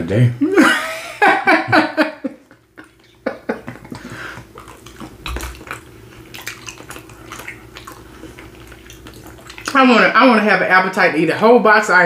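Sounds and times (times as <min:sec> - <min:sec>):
people chewing with wet smacks: 0:02.4 - 0:10.1.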